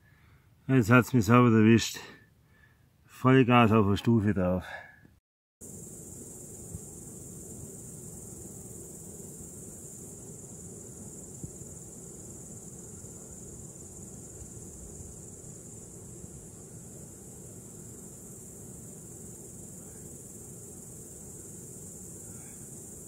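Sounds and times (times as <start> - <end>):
crickets chirring: 5.6 - 23.0.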